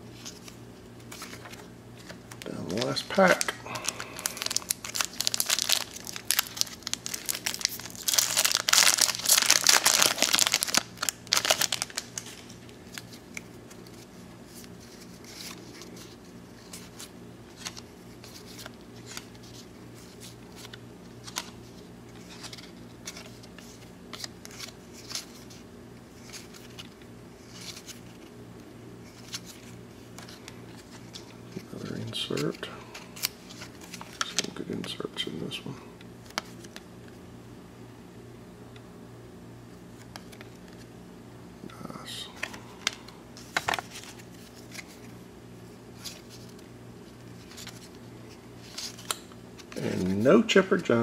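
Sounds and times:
plastic wrapper crinkling and tearing: 0:01.1 - 0:25.6, 0:29.1 - 0:34.6, 0:47.1 - 0:48.0, 0:48.6 - 0:50.2.

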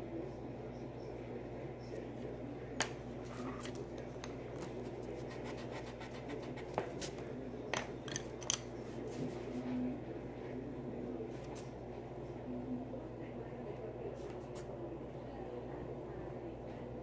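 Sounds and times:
pencil scratching on paper: 0:05.2 - 0:07.1.

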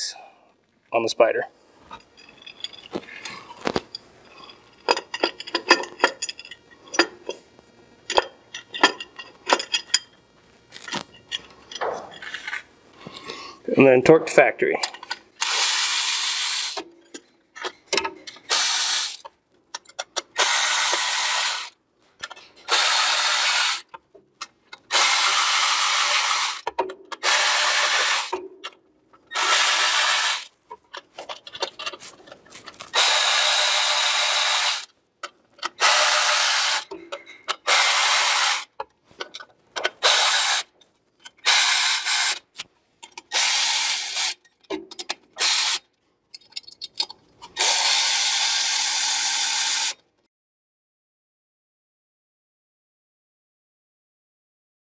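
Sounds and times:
electric ratchet spinning bolts: 0:15.0 - 0:24.0, 0:24.8 - 0:30.5, 0:32.9 - 0:34.9, 0:35.6 - 0:50.0.

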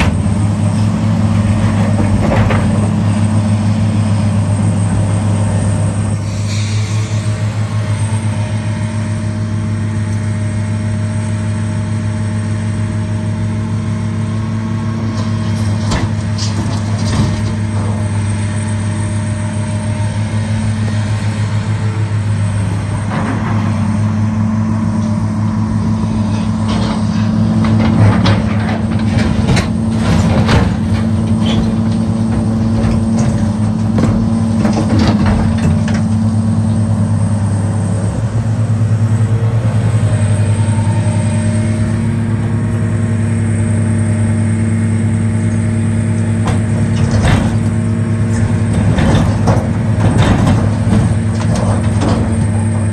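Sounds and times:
concrete rubble clanking: 0:00.0 - 0:03.1, 0:15.2 - 0:18.3, 0:26.1 - 0:37.0, 0:45.5 - 0:52.9
excavator diesel engine running: 0:00.0 - 0:52.9.

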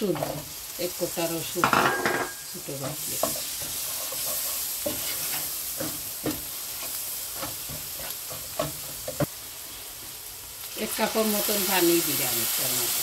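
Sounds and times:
masala sizzling in oil: 0:00.0 - 0:13.0
spatula scraping a pan: 0:02.0 - 0:09.3.

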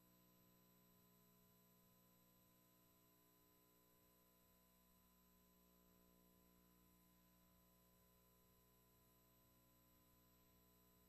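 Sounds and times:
faint hum and hiss: 0:00.0 - 0:11.0.

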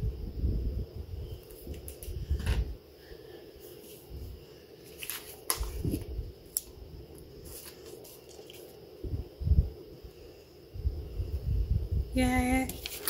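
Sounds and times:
paper rustling: 0:04.8 - 0:06.7, 0:07.4 - 0:08.8, 0:12.7 - 0:13.0.

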